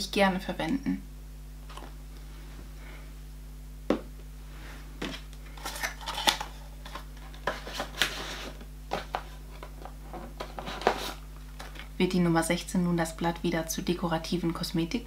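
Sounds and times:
cardboard packaging rustling: 0:05.0 - 0:11.8.

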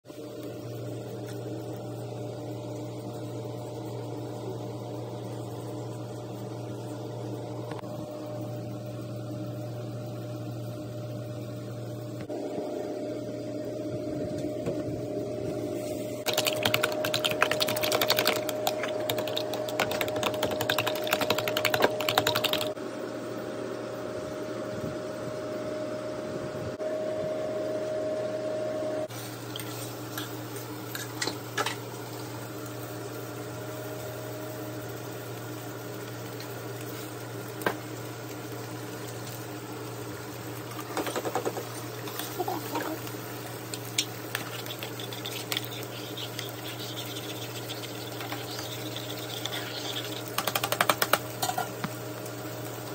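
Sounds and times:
steady hum: 0:00.2 - 0:29.4
eggs beaten in plastic container: 0:16.3 - 0:22.8, 0:44.4 - 0:51.3
utensil scraping in a pan: 0:44.3 - 0:50.4.

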